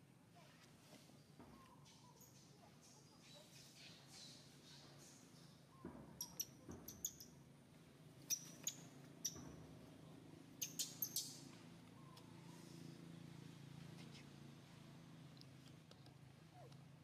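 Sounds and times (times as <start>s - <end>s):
baby monkey squeaking: 6.2s - 7.3s, 10.6s - 11.4s.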